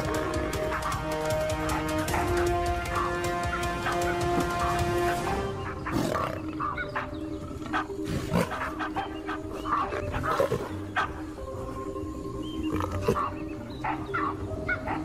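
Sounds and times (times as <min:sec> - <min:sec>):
leopard snarling: 0:00.0 - 0:02.3, 0:05.3 - 0:11.3, 0:12.6 - 0:14.0
baboons calling and barking: 0:00.0 - 0:11.7, 0:12.5 - 0:15.0
background music with held notes: 0:00.0 - 0:15.0.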